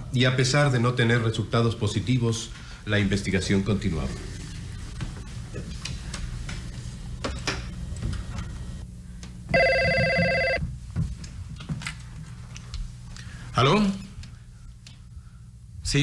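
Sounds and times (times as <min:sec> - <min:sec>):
desk telephone ringing: 0:09.5 - 0:10.6.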